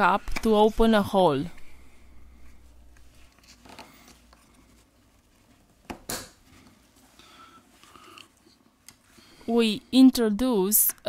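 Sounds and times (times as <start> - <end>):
faint handling sounds: 1.5 - 9.7.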